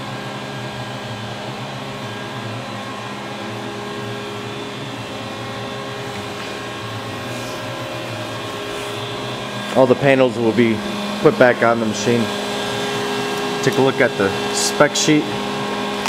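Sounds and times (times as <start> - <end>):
lathe fans and motors humming: 0.0 - 16.0.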